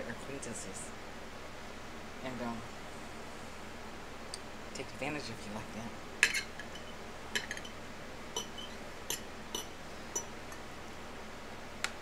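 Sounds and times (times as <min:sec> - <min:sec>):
cutlery clinking on a plate: 0:06.2 - 0:07.8, 0:08.4 - 0:10.6.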